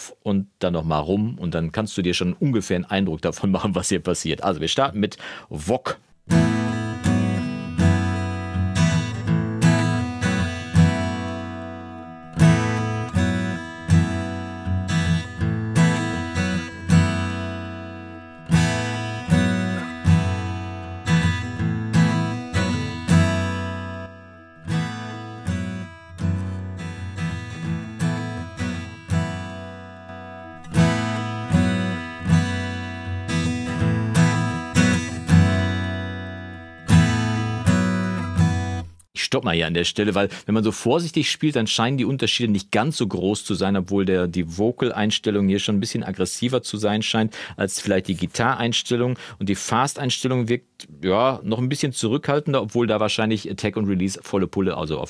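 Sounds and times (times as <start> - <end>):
acoustic guitar strumming: 6.2 - 39.0.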